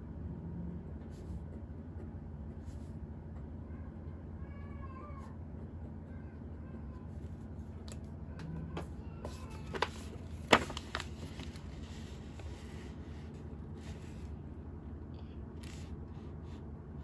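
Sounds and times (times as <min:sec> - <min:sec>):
paper pad being handled: 0:08.8 - 0:14.4.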